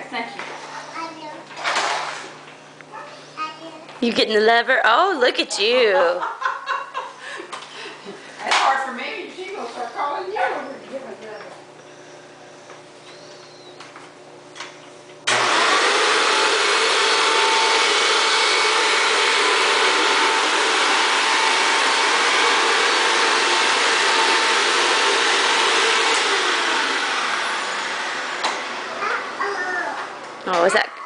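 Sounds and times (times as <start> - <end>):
vacuum cleaner motor whirring: 1.5 - 3.0, 7.5 - 30.9.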